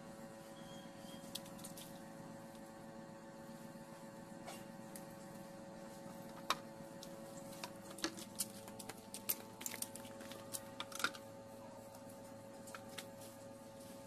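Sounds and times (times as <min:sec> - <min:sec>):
steady low hum: 0:00.0 - 0:14.0
clicks and snaps of plants: 0:01.2 - 0:02.0, 0:06.3 - 0:11.2.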